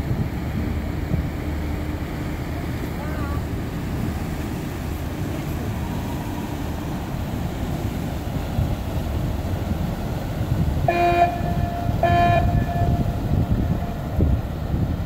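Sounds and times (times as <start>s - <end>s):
low engine rumble: 0.0s - 15.0s
ship's horn blasts: 10.6s - 14.7s.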